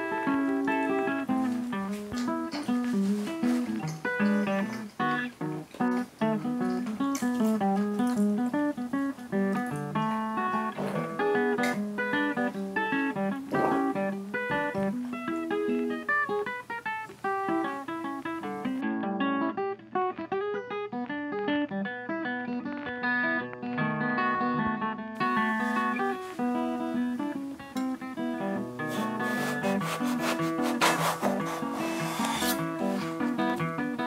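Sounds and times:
plucked acoustic guitar music: 0.0 - 34.0
knife cutting on wooden board: 28.9 - 33.1.

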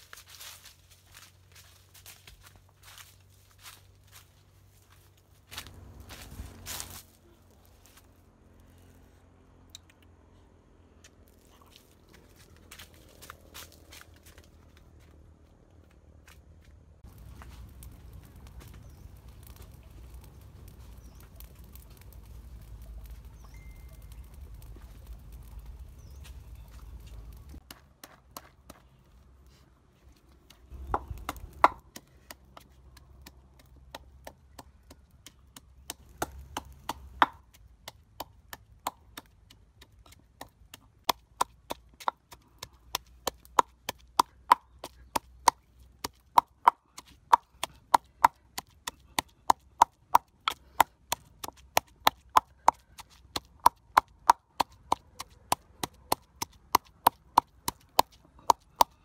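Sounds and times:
pestle pounding in a mortar: 30.8 - 32.6.

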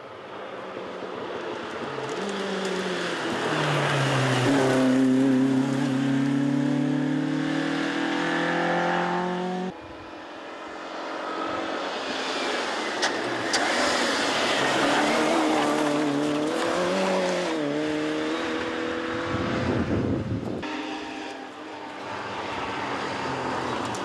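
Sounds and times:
rally car approaching: 0.3 - 24.0
rally car accelerating past: 2.0 - 9.7, 13.4 - 21.4.

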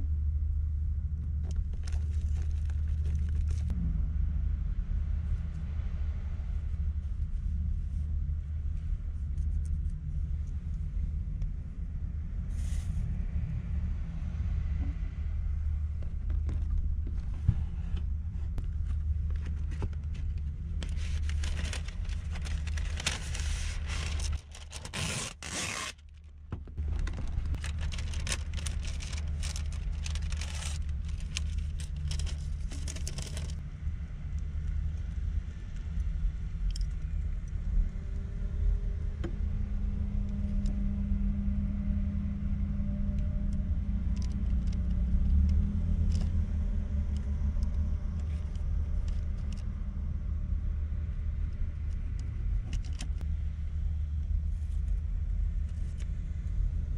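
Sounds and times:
steady low rumble: 0.0 - 56.9
plastic cling film crinkling: 20.8 - 26.2, 26.8 - 33.6.

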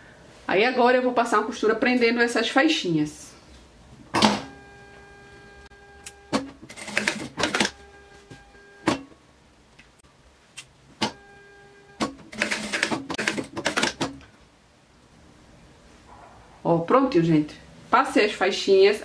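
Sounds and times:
sewing machine stitching: 6.3 - 7.8, 12.0 - 14.2.

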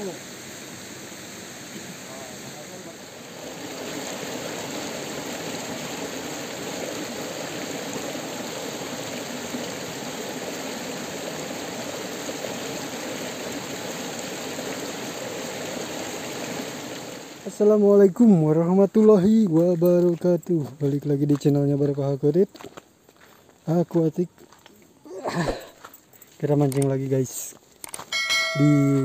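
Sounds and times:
stream flowing over rocks: 0.0 - 18.1.

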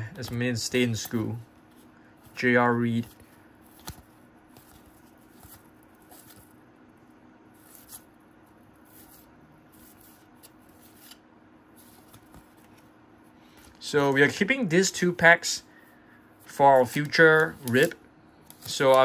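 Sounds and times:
cardboard cards rustling and clicking: 0.0 - 6.6, 7.6 - 8.1, 8.8 - 12.9, 16.5 - 19.0.

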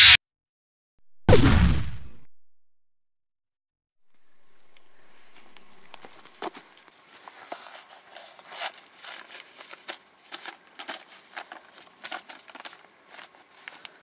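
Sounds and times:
paper map rustling: 5.0 - 14.0.

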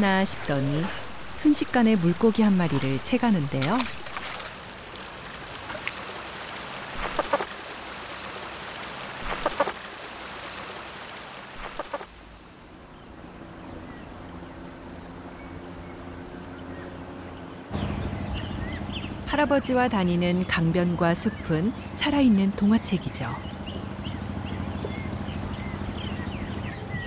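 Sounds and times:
river water running: 0.0 - 27.0
otter sharp calls: 7.0 - 7.5, 9.2 - 9.8, 11.6 - 12.1
boat motor running: 12.9 - 27.0.

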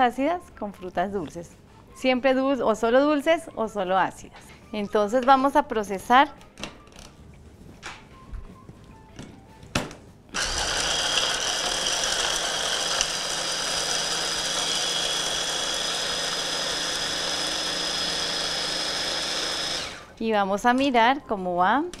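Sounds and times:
blender motor whining: 10.4 - 20.2.

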